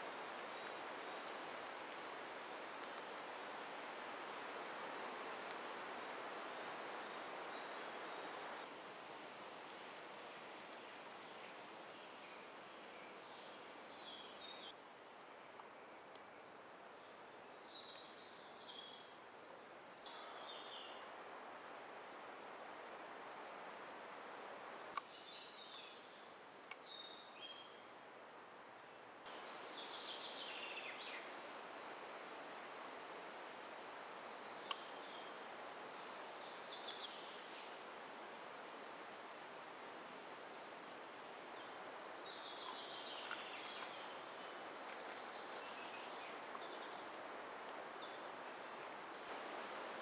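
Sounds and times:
background hiss: 0.0 - 50.0
songbirds singing: 24.7 - 27.8, 29.3 - 31.5, 34.4 - 37.8, 41.5 - 49.3.

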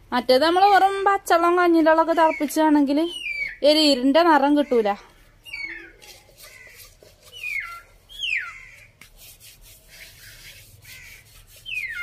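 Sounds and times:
hand rubbing clay pot: 5.6 - 12.0
bird whistled calls: 7.3 - 8.7, 11.6 - 12.0.

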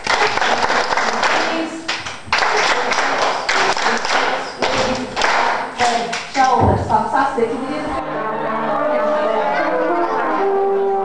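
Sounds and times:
people clapping: 0.0 - 6.6.

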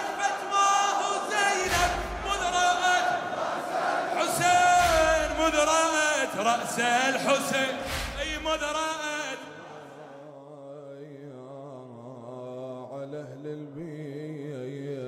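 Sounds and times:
man chanting a lament: 0.0 - 3.4, 4.1 - 15.0.

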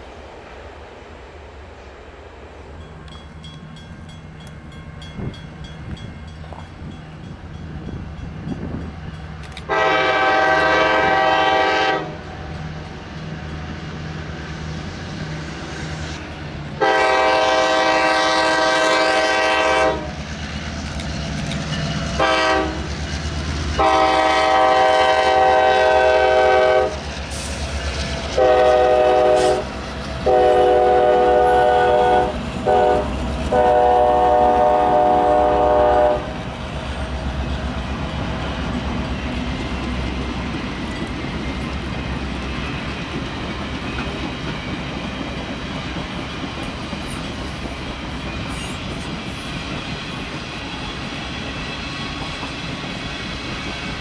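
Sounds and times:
train cars rolling on rails: 0.0 - 54.0
locomotive air horn blasts: 9.6 - 12.3, 16.8 - 20.2, 22.2 - 22.9, 23.8 - 27.0, 28.3 - 36.4.

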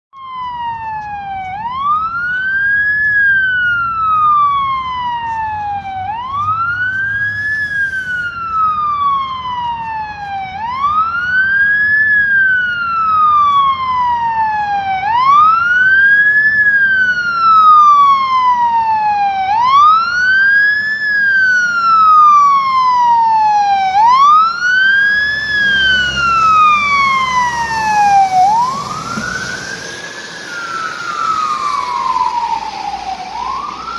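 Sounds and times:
fire engine siren wailing: 0.1 - 33.9
truck engine rumble: 0.2 - 33.9
tyres hissing on wet road: 6.4 - 8.6, 24.1 - 33.9.

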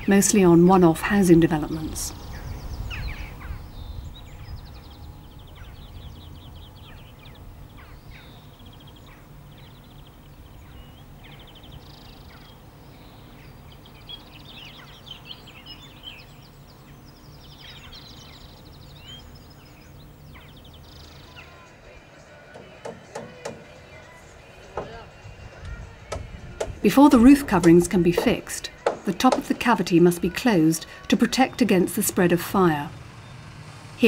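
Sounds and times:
low background rumble: 0.0 - 21.7
small birds singing: 0.0 - 34.0.

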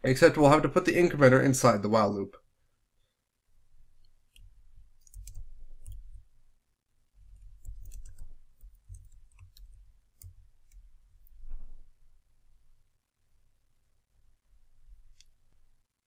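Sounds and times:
keyboard keystrokes clicking: 5.0 - 6.2, 7.4 - 10.8.

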